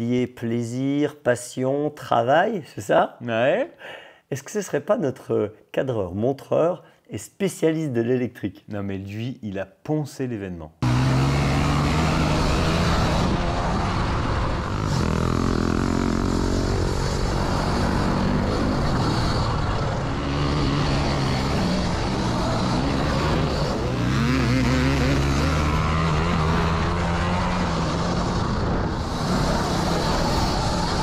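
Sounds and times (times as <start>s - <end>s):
motorcycle engines revving: 10.8s - 31.0s.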